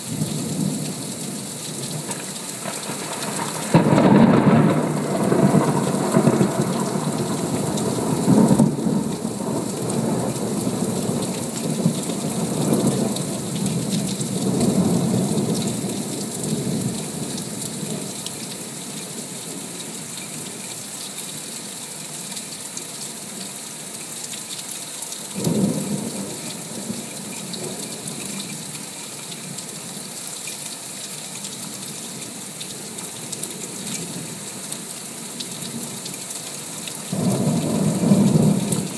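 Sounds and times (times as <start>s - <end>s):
heavy rain: 0.0s - 38.9s
thunder rumbling: 2.6s - 16.8s.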